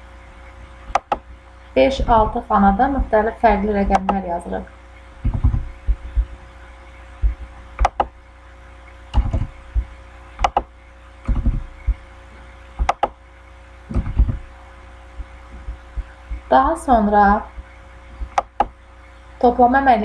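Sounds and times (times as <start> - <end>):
faint steady hum: 0.0 - 20.0
keyboard typing: 0.9 - 1.2, 3.5 - 4.2, 5.2 - 6.0, 7.2 - 8.1, 9.1 - 9.6, 10.4 - 10.7, 11.3 - 12.0, 12.8 - 13.2, 13.9 - 14.5, 18.3 - 18.8
mouse clicks: 0.9 - 1.2, 3.9 - 4.2, 7.8 - 8.1, 10.4 - 10.7, 12.8 - 13.2, 18.3 - 18.8.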